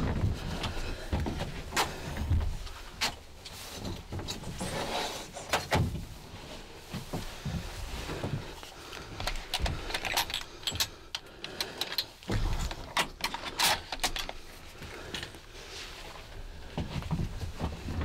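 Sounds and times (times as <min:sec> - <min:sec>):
clothing rustling: 0:00.0 - 0:11.0, 0:13.8 - 0:18.0
gear clicks and knocks: 0:07.0 - 0:15.4.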